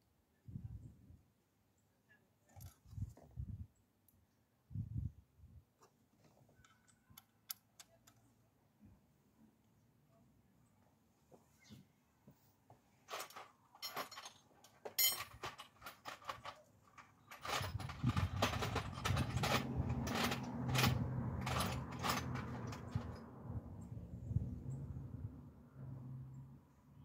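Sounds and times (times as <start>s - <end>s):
clicks and rattles of car parts: 13.1s - 23.2s.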